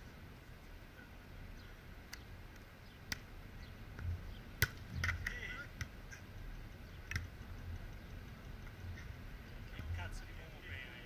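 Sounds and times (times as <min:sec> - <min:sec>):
steady low rumble: 0:00.0 - 0:11.0
sharp knocks and clicks: 0:07.0 - 0:08.8.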